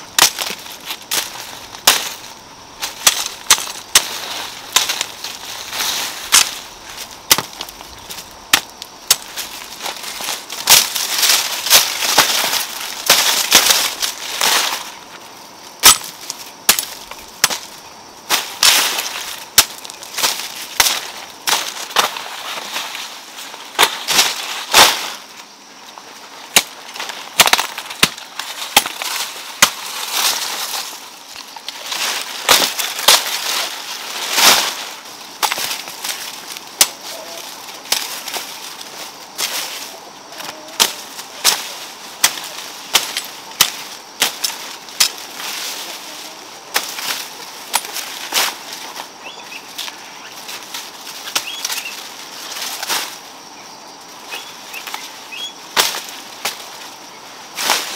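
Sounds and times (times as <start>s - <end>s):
rustling of cut plants: 0.0s - 57.9s
hoe chopping stony soil: 0.1s - 14.8s, 15.8s - 17.7s, 18.3s - 22.7s, 26.5s - 30.9s, 31.6s - 33.7s, 35.4s - 39.6s, 40.4s - 45.6s, 46.7s - 48.9s.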